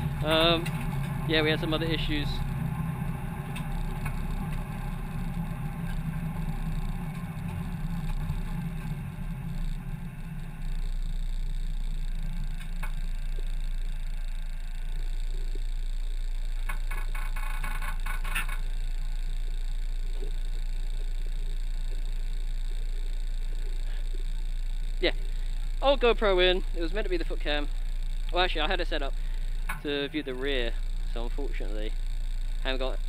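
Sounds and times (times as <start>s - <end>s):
race car engine idling: 0.0s - 15.6s.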